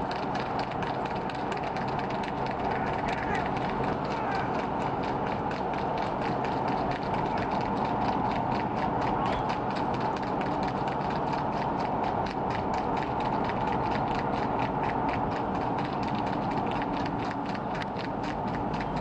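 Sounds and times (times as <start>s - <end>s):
engine and road hum: 0.0s - 19.0s
rapid even clicking: 0.0s - 19.0s.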